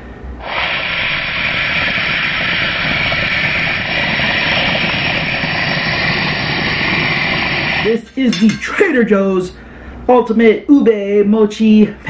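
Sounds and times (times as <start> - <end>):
aerosol can spraying hiss: 0.4 - 7.8.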